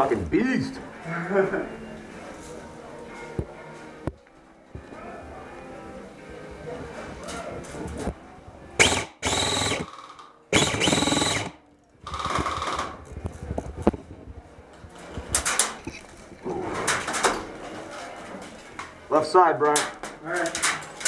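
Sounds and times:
airsoft rifle firing bursts: 8.8s - 13.0s.

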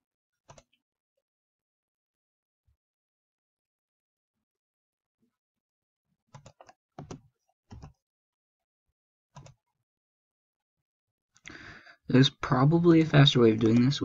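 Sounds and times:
keyboard and mouse clicks: 0.5s - 0.8s, 6.3s - 8.0s, 9.4s - 9.6s, 13.6s - 14.0s.

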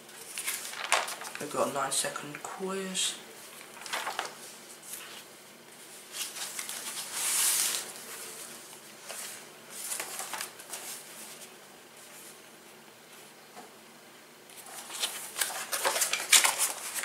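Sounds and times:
magazine paper rustling: 0.0s - 1.8s, 3.4s - 12.4s, 14.5s - 17.0s.

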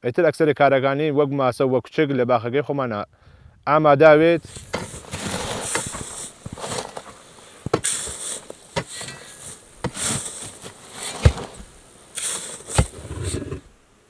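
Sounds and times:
loose soil scattering: 4.2s - 13.8s
digging tool striking earth: 4.4s - 13.7s.

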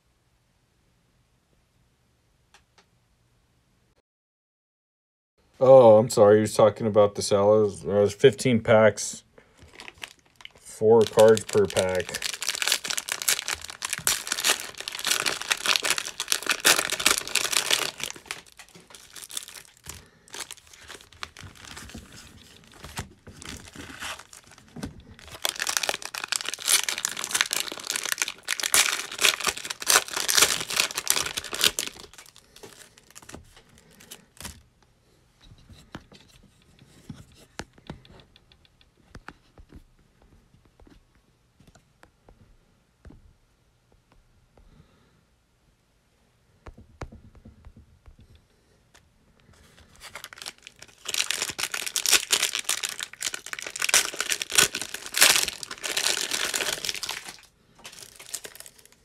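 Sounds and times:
cellophane card packs crinkling: 9.5s - 34.7s, 49.5s - 59.0s.

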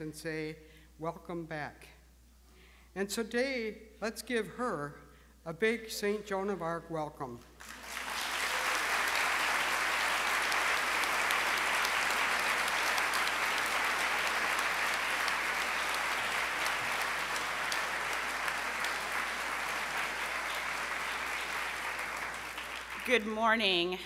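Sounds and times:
congregation applauding: 7.6s - 23.8s.

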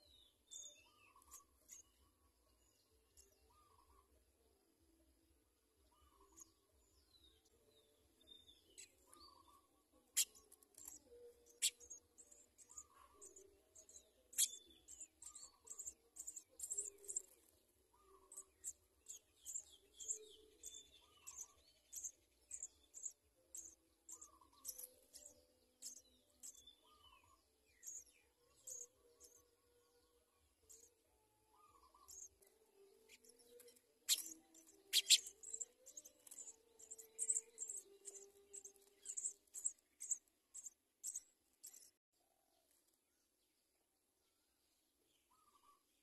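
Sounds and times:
nestlings high chirps: 10.2s - 17.4s, 18.3s - 26.6s, 33.1s - 41.9s.

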